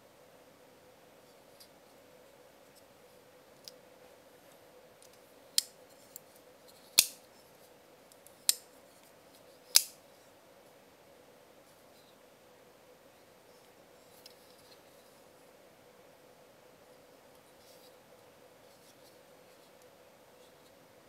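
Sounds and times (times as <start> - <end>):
folding knife blade clicking: 9.7 - 9.9.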